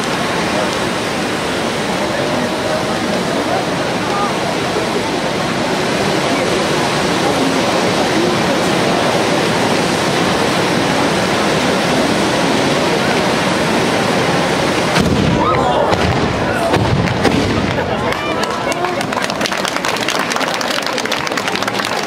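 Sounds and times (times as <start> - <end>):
fireworks fountains hissing: 0.0 - 22.0
firework cracks and pops: 14.8 - 22.0.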